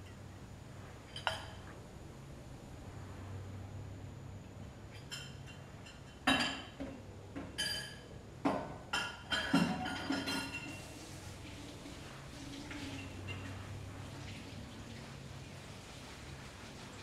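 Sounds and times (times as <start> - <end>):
dishes clinking on counter: 1.1 - 1.7, 4.9 - 10.9.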